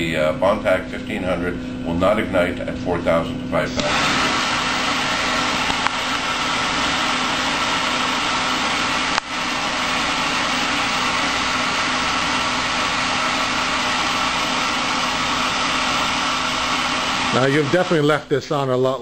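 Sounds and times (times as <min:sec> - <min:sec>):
torch flame hissing: 0:03.8 - 0:18.2.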